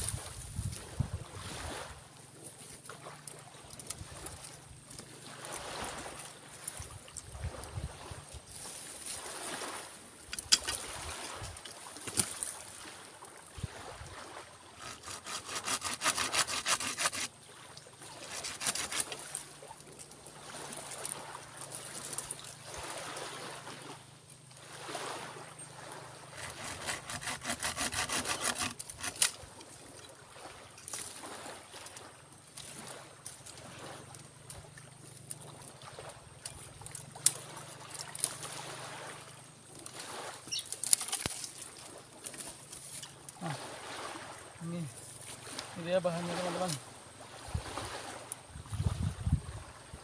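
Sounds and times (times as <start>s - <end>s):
hand saw cutting wood: 10.3s - 10.8s, 14.7s - 17.3s, 18.2s - 19.4s, 26.3s - 29.4s
rough scraping: 14.8s - 17.3s, 18.2s - 19.4s, 26.3s - 29.4s.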